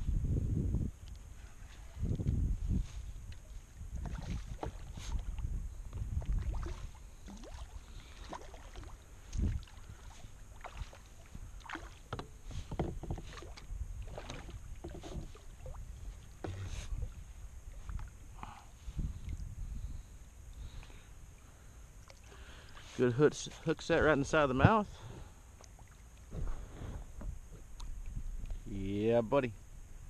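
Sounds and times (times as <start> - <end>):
low rumbles on microphone: 0.0 - 7.3, 12.5 - 20.2
water splashing around kayak: 1.4 - 28.8.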